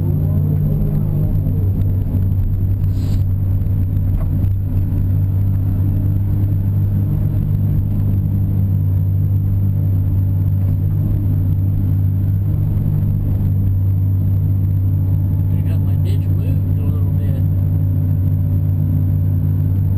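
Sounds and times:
excavator diesel engine humming: 0.0 - 19.9.

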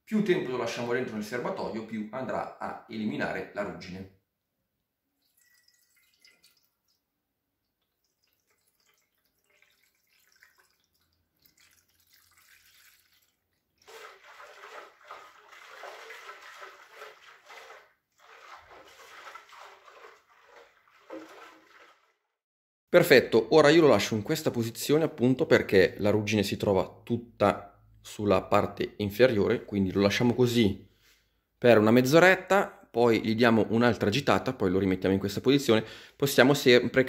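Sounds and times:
liquid splashing in metal tank: 5.2 - 22.4.

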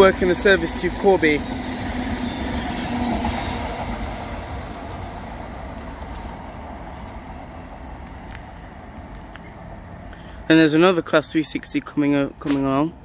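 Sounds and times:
train wheels rumbling on rail: 0.0 - 10.1.

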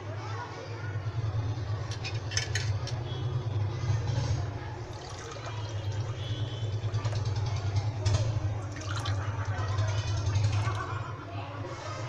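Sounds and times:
drink pouring into glass: 4.8 - 7.4, 8.4 - 10.7.

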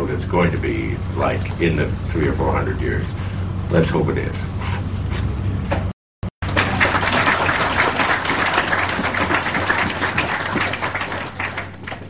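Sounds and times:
steady low hum: 0.0 - 12.0
audience applauding: 6.4 - 12.0.

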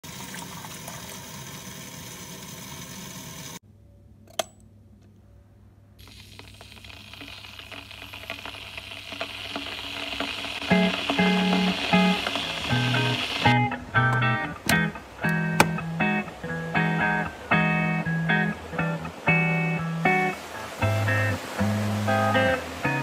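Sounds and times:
water running into kettle: 0.0 - 3.6, 6.0 - 15.7
kettle heating hiss: 6.0 - 23.0
guitar music: 10.6 - 23.0
kettle switch click: 14.1 - 15.8.

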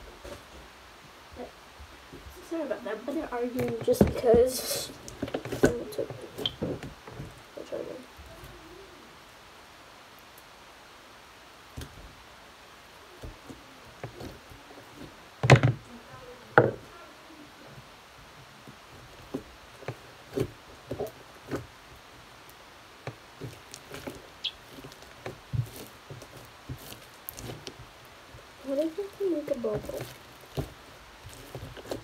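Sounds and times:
slime squishing: 23.1 - 32.0.

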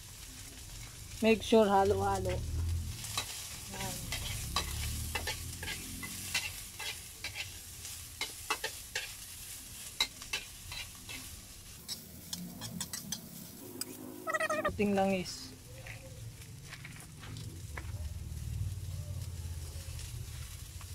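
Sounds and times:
food sizzling in oil: 0.0 - 14.8
spatula scraping wok: 1.9 - 14.8.

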